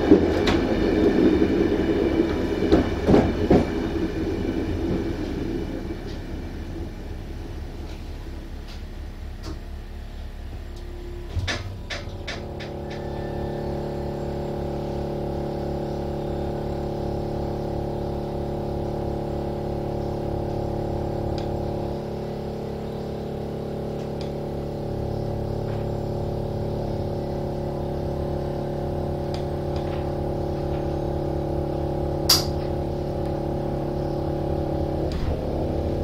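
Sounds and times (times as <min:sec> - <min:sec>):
train mechanical hum: 0:00.0 - 0:36.0.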